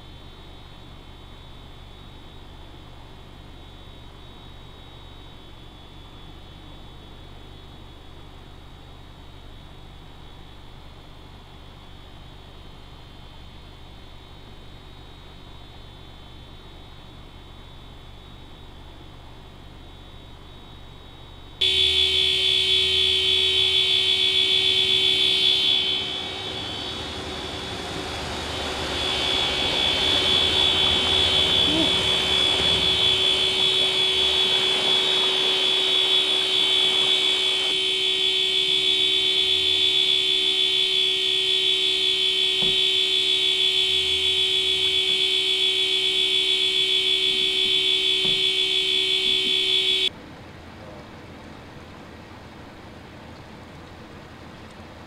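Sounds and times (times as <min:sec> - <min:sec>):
high-pitched alarm tone: 0:21.0 - 0:50.1.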